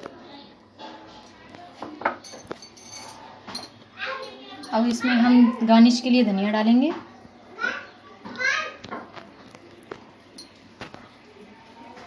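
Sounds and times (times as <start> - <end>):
faint distant voices: 0.0 - 12.0
light clink: 10.4 - 10.6.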